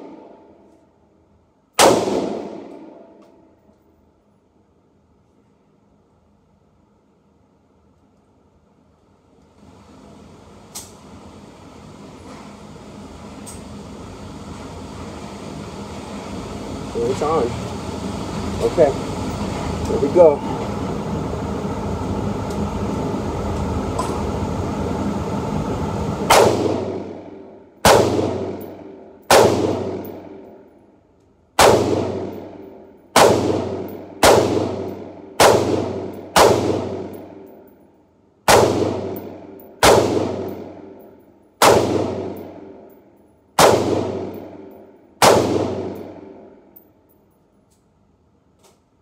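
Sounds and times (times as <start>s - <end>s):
ventilation hum: 0.0s - 49.0s
rifle gunshots echoing: 1.8s - 3.0s, 26.3s - 27.2s, 27.8s - 28.7s, 29.3s - 30.4s, 31.6s - 37.4s, 38.5s - 41.0s, 41.6s - 42.7s, 43.6s - 46.4s.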